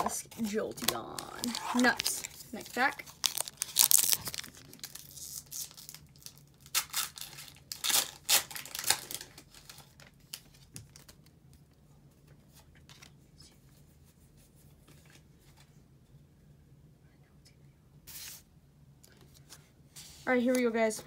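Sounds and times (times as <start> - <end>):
foil crinkling and rustling: 0.9 - 11.2
foil wrapper tearing: 1.1 - 10.1.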